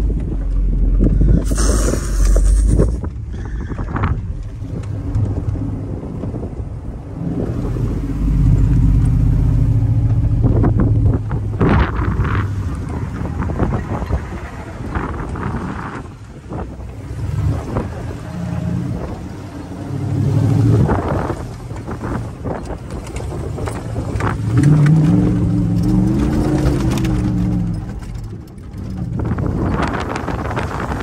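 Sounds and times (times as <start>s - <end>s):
truck engine pulling under load: 0.0s - 31.0s
wind gusts on microphone: 0.0s - 31.0s
tyres in sand: 11.2s - 31.0s.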